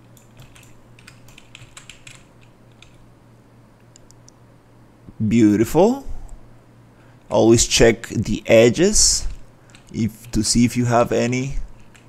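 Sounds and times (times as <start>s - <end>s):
computer keyboard clicking: 0.0s - 3.0s, 9.3s - 10.4s, 11.8s - 12.0s
faint low hum: 0.0s - 12.0s.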